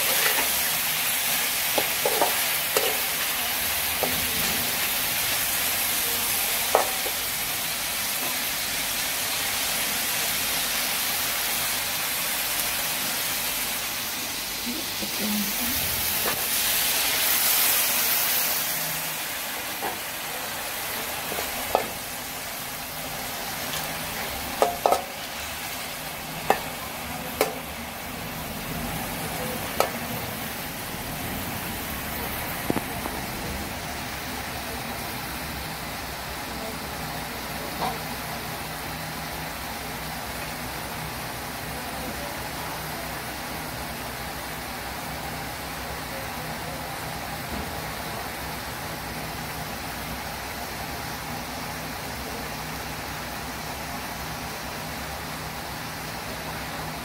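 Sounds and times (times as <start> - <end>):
livers sizzling in a wok: 0.0 - 57.0
metal spatula knocking on pan: 24.6 - 25.1.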